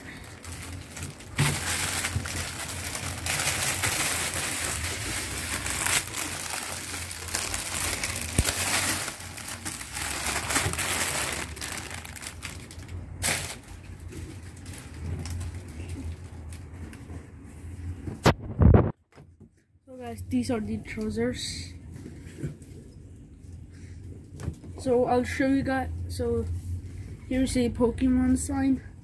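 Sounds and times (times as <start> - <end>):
plastic bag crinkling: 0.0 - 16.3.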